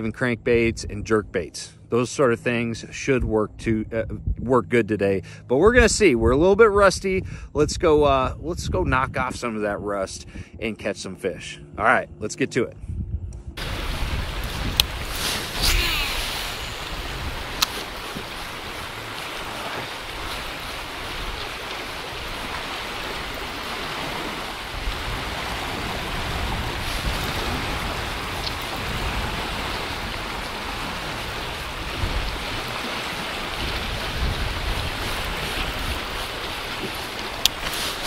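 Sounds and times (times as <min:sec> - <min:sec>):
steady wind: 0:00.0 - 0:38.0
wind buffeting microphone: 0:03.0 - 0:04.7, 0:05.6 - 0:38.0
water lapping around a boat: 0:13.6 - 0:38.0.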